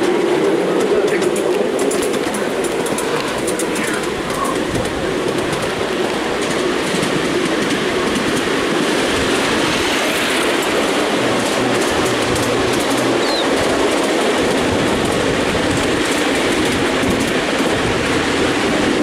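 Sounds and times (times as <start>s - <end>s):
miniature train running rumble: 0.0s - 19.0s
wheels ticking on track: 0.0s - 19.0s.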